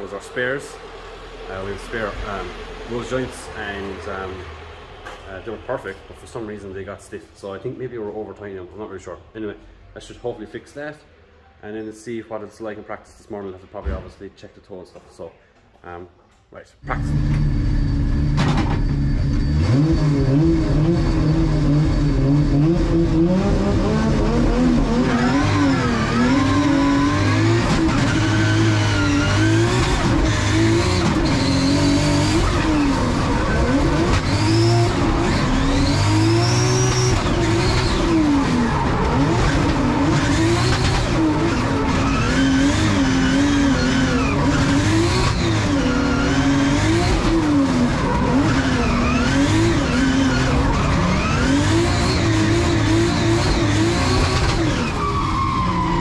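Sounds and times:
car engine revving hard: 17.0s - 56.0s.

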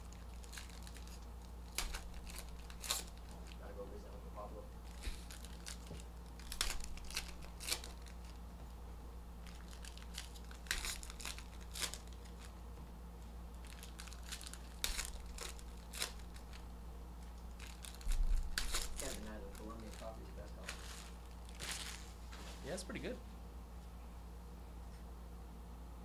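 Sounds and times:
foil wrappers crinkling and tearing: 0.0s - 3.8s, 4.8s - 8.5s, 9.4s - 12.6s, 13.5s - 22.2s
low steady hum: 0.0s - 26.0s.

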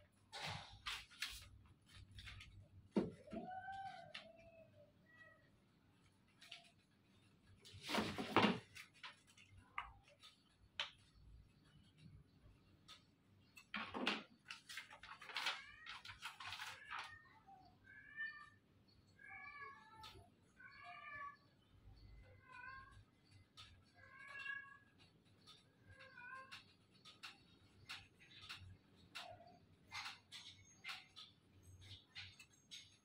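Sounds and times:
paper and plastic rustling: 0.4s - 2.9s, 13.8s - 17.2s
cat meowing faintly: 15.3s - 26.7s.

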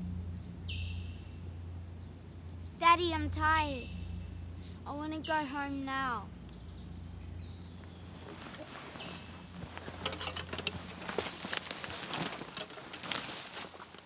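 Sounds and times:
low steady hum: 0.0s - 14.0s
leaves and twigs crackling: 5.9s - 14.0s
footsteps through undergrowth: 7.8s - 14.0s.

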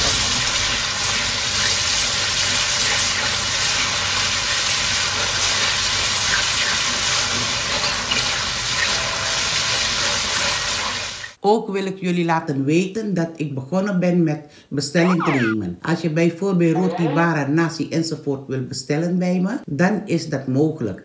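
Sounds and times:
chicken frying in hot oil: 0.0s - 11.4s.

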